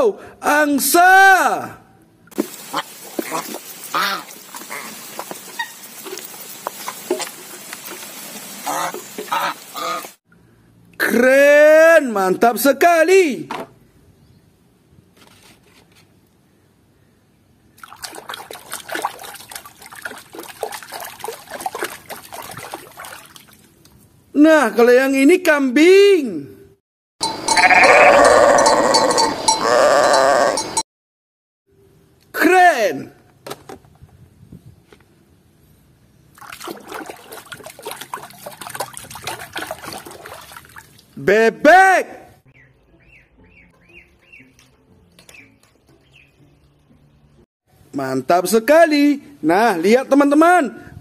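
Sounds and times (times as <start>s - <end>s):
water splashes and drips: 2.3s - 10.3s, 17.8s - 24.2s, 36.3s - 41.3s, 44.5s - 47.0s
hand sloshing through water: 17.8s - 23.8s, 36.4s - 41.2s.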